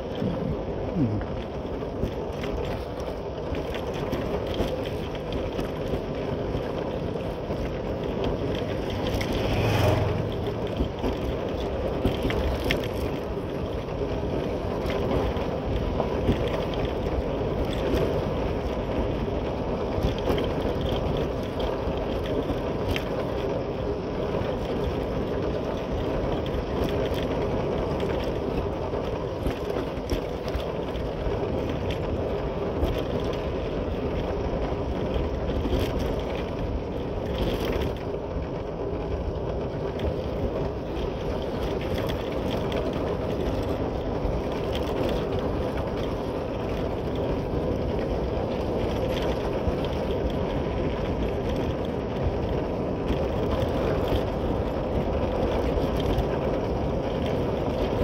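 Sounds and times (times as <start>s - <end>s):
tyre and wind noise: 0.0s - 58.0s
motorcycle engine running: 8.6s - 11.1s.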